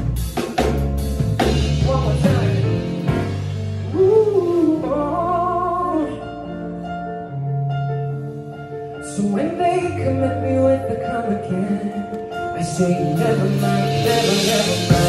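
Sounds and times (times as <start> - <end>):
drums and cymbals: 0.0 - 4.9, 12.7 - 15.0
live band accompaniment: 0.0 - 15.0
man singing into a microphone: 1.8 - 3.0, 3.9 - 6.4, 9.0 - 15.0.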